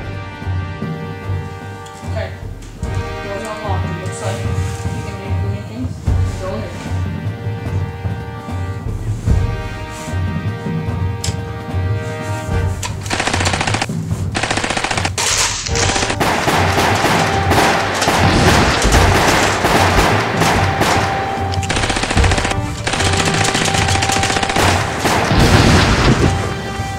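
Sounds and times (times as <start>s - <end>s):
background music: 0.0s - 26.9s
rapid automatic gunfire: 13.0s - 26.4s.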